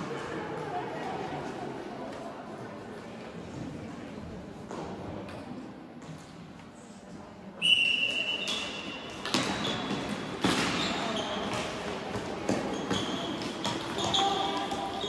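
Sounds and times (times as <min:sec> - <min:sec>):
shoes squeaking on court: 0:08.4 - 0:15.0.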